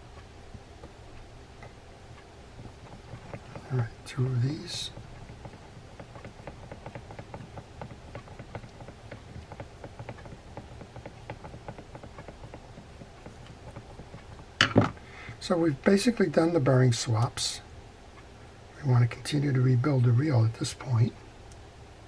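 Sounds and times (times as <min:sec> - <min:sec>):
screwdriver ticking on screws: 0:02.2 - 0:14.6.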